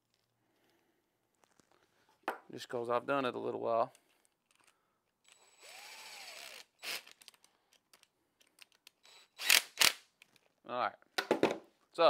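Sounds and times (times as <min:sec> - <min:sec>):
cordless drill running: 0:05.3 - 0:07.2, 0:09.0 - 0:10.0.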